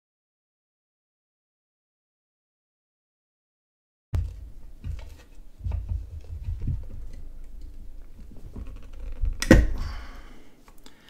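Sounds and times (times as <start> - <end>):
handling bumps and clicks: 4.2 - 9.9.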